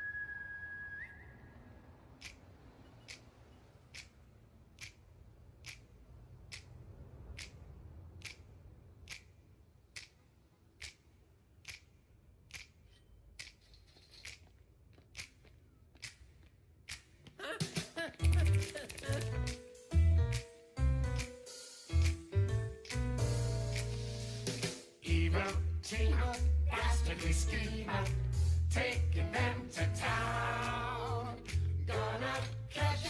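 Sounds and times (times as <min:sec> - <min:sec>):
sharp clicks: 0:02.2 - 0:17.3, 0:18.2 - 0:19.6.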